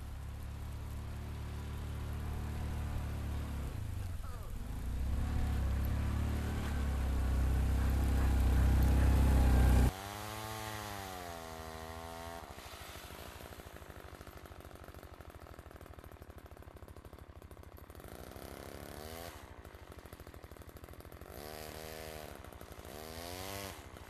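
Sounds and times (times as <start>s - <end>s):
utility vehicle engine running: 0.0s - 10.6s.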